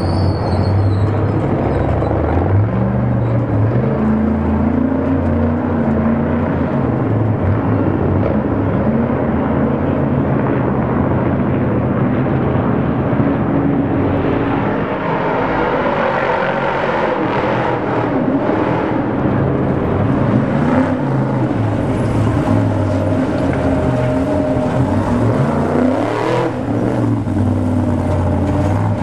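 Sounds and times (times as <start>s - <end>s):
truck engines revving: 0.0s - 29.0s.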